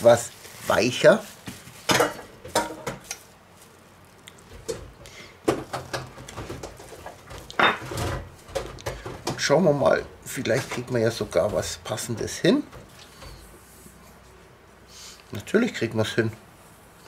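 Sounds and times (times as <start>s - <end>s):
cling film crinkling: 0.0s - 1.9s.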